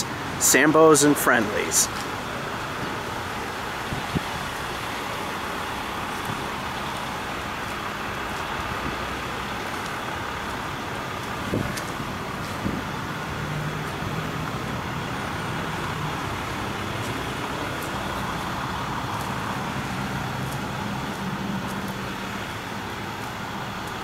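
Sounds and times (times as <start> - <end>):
street traffic noise: 0.0 - 24.0
vehicle engine running: 0.0 - 24.0.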